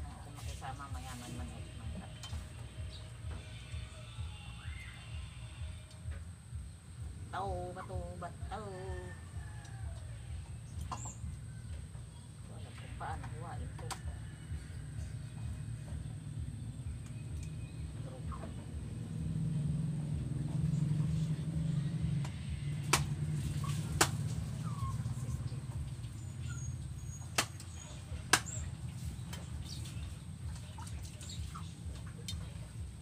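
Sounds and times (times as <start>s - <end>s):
steady low hum: 0.0s - 33.0s
faint bird chirps: 2.8s - 5.8s, 9.2s - 18.8s.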